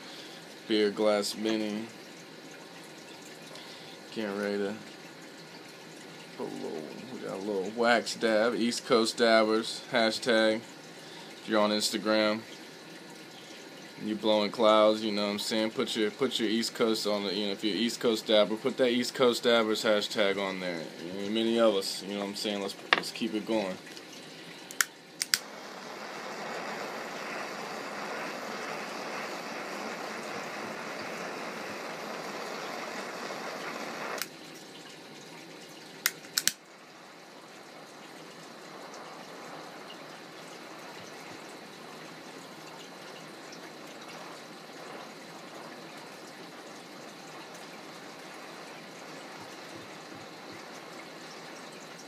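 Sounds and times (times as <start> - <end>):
steady hiss: 0.0 - 2.5, 3.3 - 34.4, 36.0 - 52.0
water bubbling through glass: 6.4 - 7.8
sharp clicks: 24.7 - 25.5, 36.0 - 36.6.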